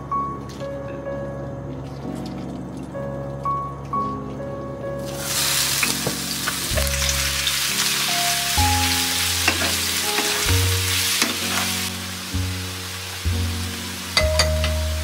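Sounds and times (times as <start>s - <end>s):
vegetables sizzling in hot oil: 5.1s - 15.0s.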